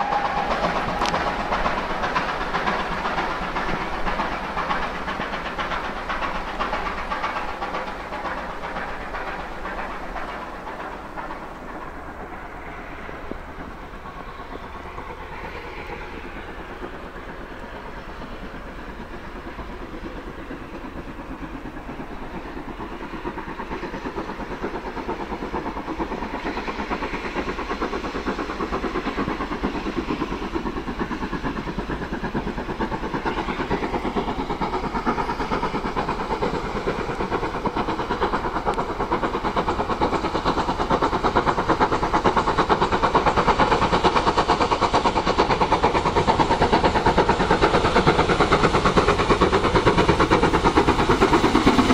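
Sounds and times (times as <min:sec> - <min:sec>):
steam locomotive chuffing: 0:00.0 - 0:51.9.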